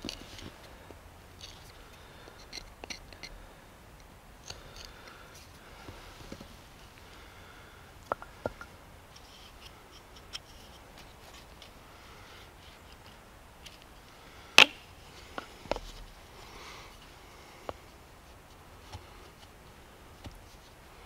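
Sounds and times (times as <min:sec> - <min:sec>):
light wooden clicks and knocks: 0:08.0 - 0:11.7.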